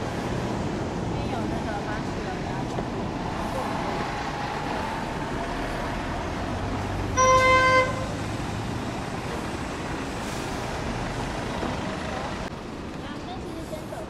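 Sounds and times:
traffic passing on cobbles: 0:00.0 - 0:14.0
car horn honk: 0:07.2 - 0:08.2.

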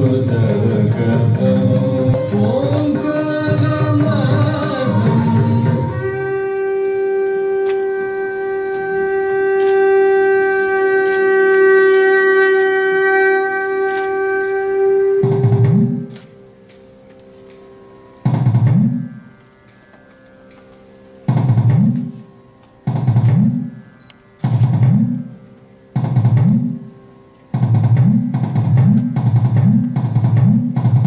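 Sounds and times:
ornamented dance music melody: 0:00.0 - 0:31.0
long steady wind instrument note: 0:04.8 - 0:16.7.

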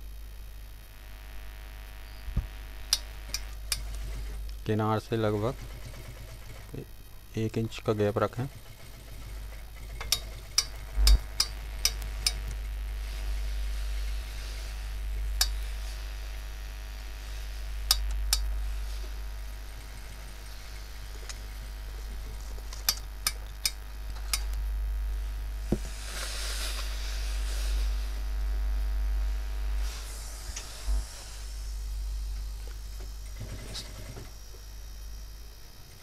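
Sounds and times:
steady low hum: 0:00.0 - 0:36.0
steam iron clicks: 0:02.9 - 0:04.3, 0:09.8 - 0:12.6
steam hissing: 0:08.6 - 0:16.5, 0:25.6 - 0:28.2, 0:29.8 - 0:34.3.

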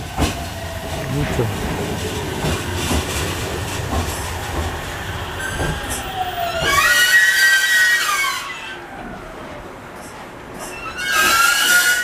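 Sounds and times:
train wheels rumbling: 0:00.0 - 0:12.0
train brakes squealing: 0:05.2 - 0:08.9, 0:10.0 - 0:12.0.

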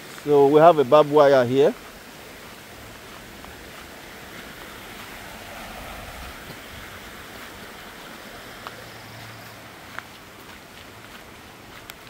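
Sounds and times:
flowing water rushing: 0:00.0 - 0:12.0
faint ticks: 0:09.9 - 0:12.0.

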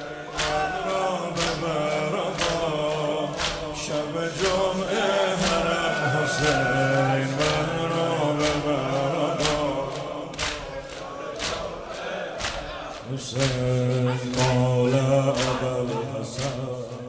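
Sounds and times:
men chanting in chorus: 0:00.0 - 0:17.0.

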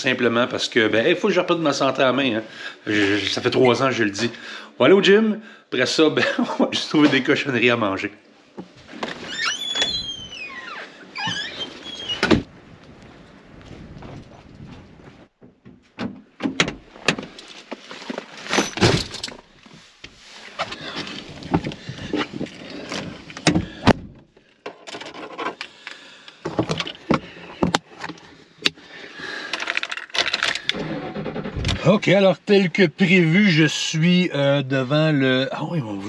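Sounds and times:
knocks and clicks in truck cab: 0:15.4 - 0:17.3.

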